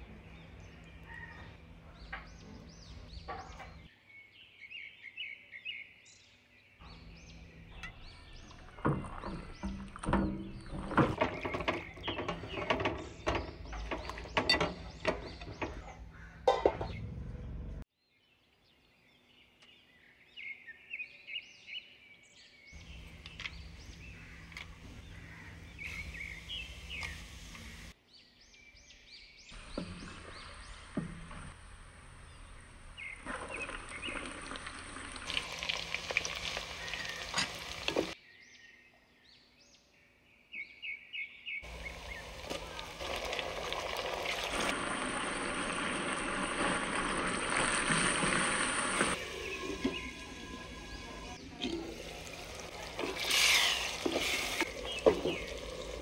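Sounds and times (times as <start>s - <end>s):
birds chirping: 0.0s - 56.0s
onions frying and stirred: 8.9s - 15.8s, 32.8s - 38.2s, 41.6s - 56.0s
hot oil sizzling in a pot: 33.3s - 38.2s, 41.7s - 56.0s.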